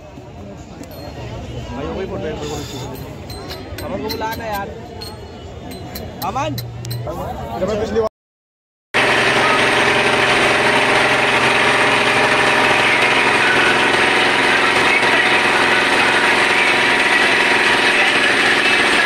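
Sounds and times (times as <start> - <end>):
motorboat engine running: 9.0 - 19.0.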